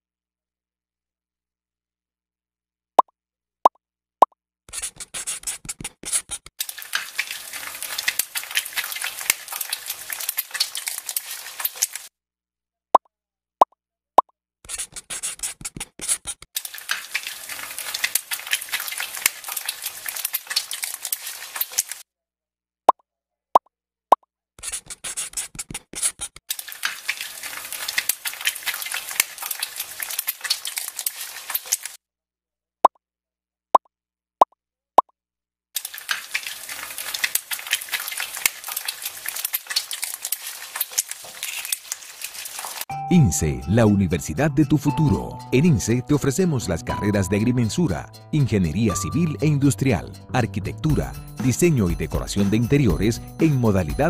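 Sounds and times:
egg frying in hot oil: 0:04.8 - 0:12.1, 0:14.7 - 0:22.0, 0:24.8 - 0:32.0, 0:35.8 - 0:42.9
sizzling crackle: 0:06.6 - 0:12.1, 0:16.6 - 0:22.0, 0:26.5 - 0:32.0, 0:35.8 - 0:42.9.

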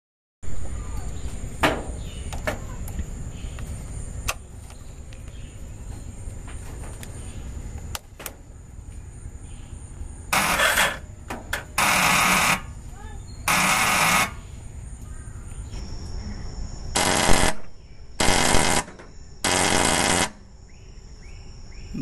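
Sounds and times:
harsh burst of noise: 0:16.9 - 0:20.4.

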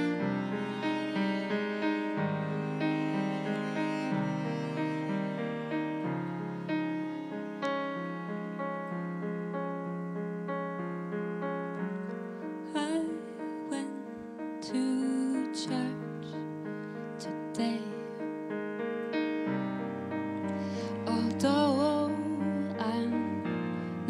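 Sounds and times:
bowed cello low notes: 0:00.0 - 0:08.6
digital piano playing slow song: 0:00.0 - 0:24.0
woman singing: 0:12.6 - 0:16.4, 0:17.2 - 0:18.2, 0:20.9 - 0:23.5.

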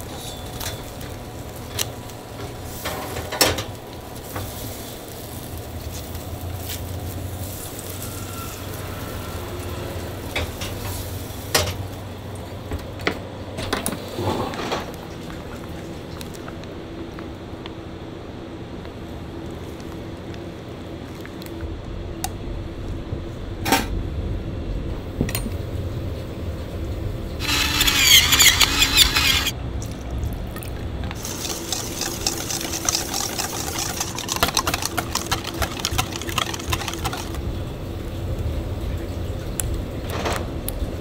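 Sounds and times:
liquid pouring into plastic jar: 0:30.6 - 0:37.4.

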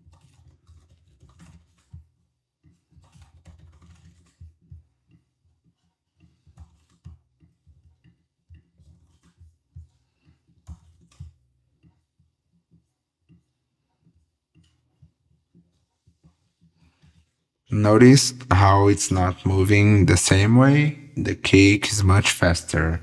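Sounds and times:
keyboard typing: 0:03.0 - 0:04.4.

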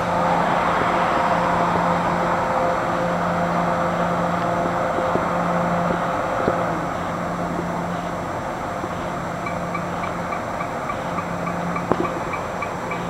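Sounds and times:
train rushing past: 0:00.0 - 0:06.9
steady low hum: 0:00.0 - 0:13.0.

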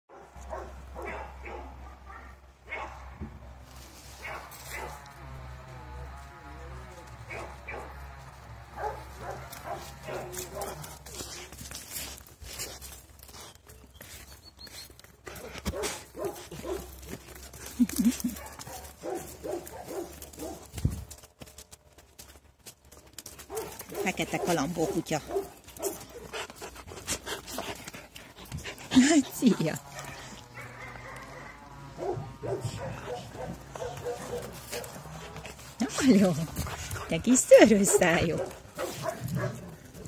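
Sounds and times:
dogs barking: 0:00.1 - 0:03.2, 0:04.2 - 0:05.1, 0:07.2 - 0:11.4, 0:15.3 - 0:17.2, 0:18.2 - 0:20.8, 0:23.4 - 0:26.3, 0:29.8 - 0:35.4, 0:36.8 - 0:40.0.

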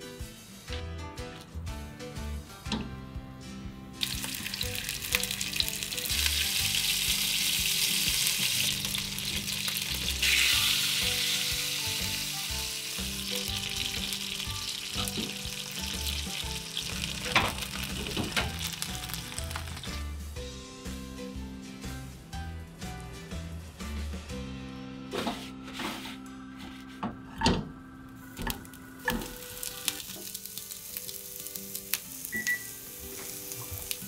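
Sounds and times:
fish sizzling in a frying pan: 0:04.0 - 0:20.1, 0:28.4 - 0:34.0.

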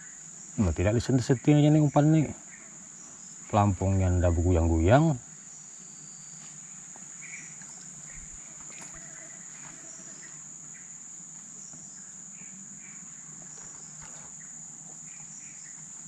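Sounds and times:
shrill insect chorus: 0:00.0 - 0:16.0.

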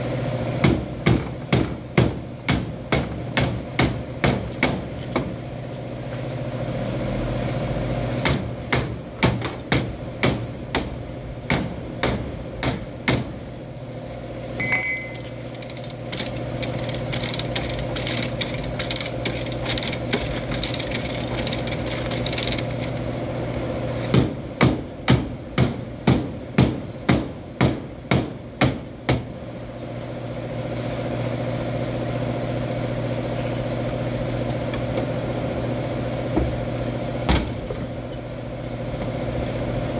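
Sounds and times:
steady machine hum: 0:00.0 - 0:39.9
ringing metallic knock: 0:14.6 - 0:15.4.

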